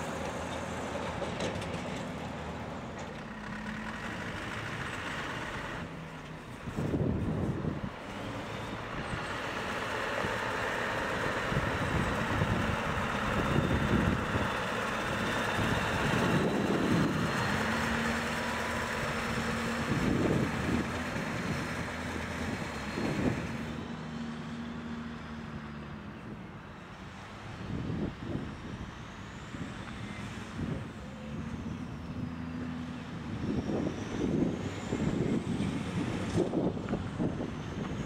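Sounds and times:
diesel truck engine running: 0:00.0 - 0:27.0.

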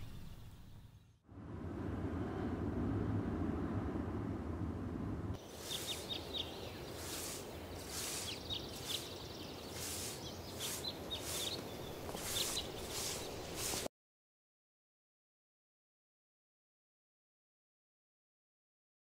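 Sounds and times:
low steady rumble: 0:01.3 - 0:05.6
hissy swishes: 0:05.4 - 0:13.9
small birds chirping: 0:05.4 - 0:13.9.

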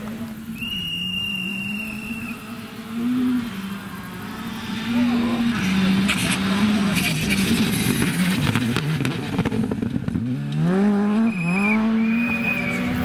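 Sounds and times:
rally car engine at full throttle: 0:00.0 - 0:13.0.

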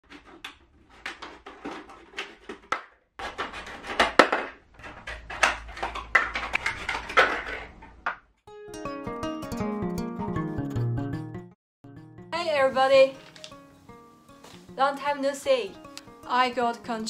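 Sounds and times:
plastic crackling: 0:13.1 - 0:13.6.

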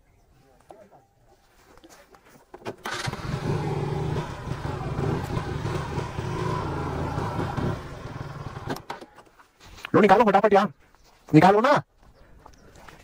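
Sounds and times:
motorcycle engine running: 0:02.9 - 0:08.9.

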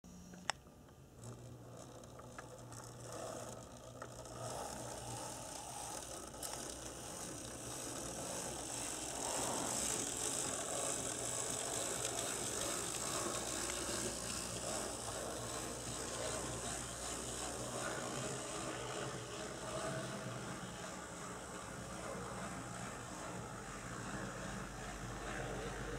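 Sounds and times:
steady low hum: 0:00.0 - 0:25.9
model train motor whirring: 0:00.2 - 0:25.9.

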